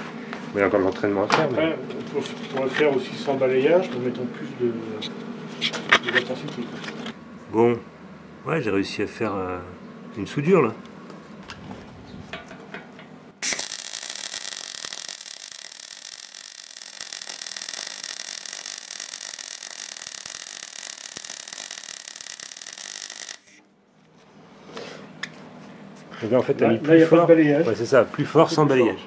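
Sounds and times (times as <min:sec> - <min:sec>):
welding arc crackling hiss: 0:13.4 - 0:23.6.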